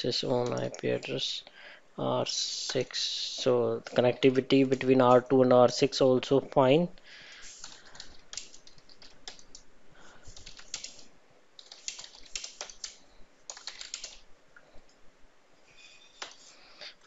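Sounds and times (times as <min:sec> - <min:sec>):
typing on a keyboard: 0:07.6 - 0:09.6, 0:10.3 - 0:14.2.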